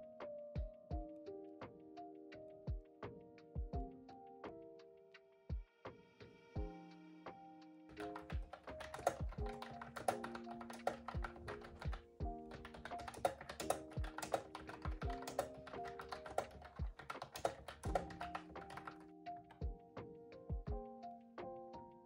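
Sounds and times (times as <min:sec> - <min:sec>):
background music with sustained notes: 0:00.0 - 0:22.0
fast typing on keyboard: 0:07.9 - 0:19.6.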